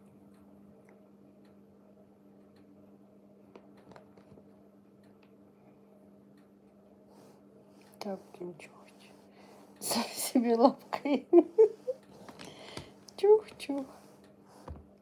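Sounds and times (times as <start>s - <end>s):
faint steady hum: 0.0s - 15.0s
soft clicks: 2.4s - 2.8s, 3.5s - 5.4s.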